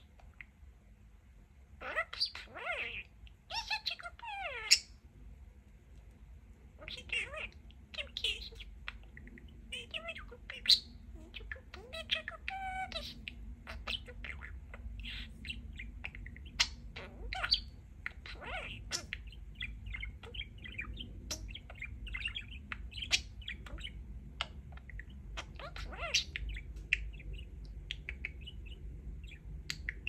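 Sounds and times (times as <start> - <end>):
budgerigar chattering: 6.8 - 30.0.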